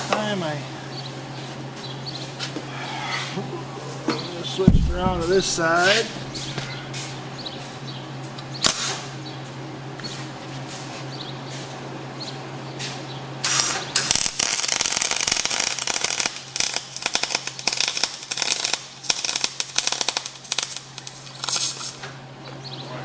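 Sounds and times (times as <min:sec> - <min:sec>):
steady low hum: 0:00.0 - 0:13.4
welding arc crackling: 0:04.4 - 0:07.0, 0:13.4 - 0:22.0.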